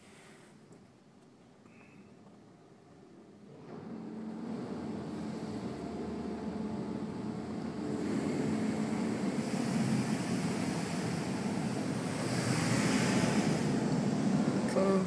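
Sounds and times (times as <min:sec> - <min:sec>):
low steady hum: 0:00.6 - 0:15.0
water spray on car body: 0:08.0 - 0:14.5.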